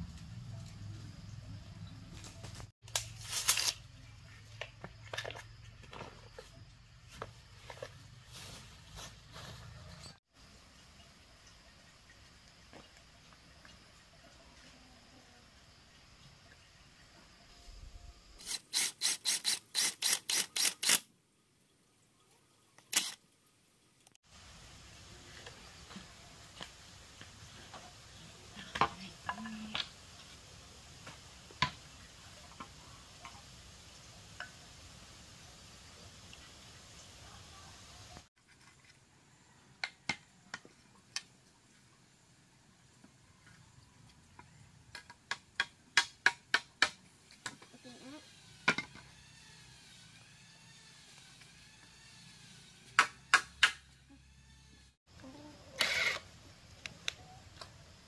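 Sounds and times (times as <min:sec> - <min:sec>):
hand tool striking wood: 0:45.0 - 0:47.6, 0:53.0 - 0:53.8.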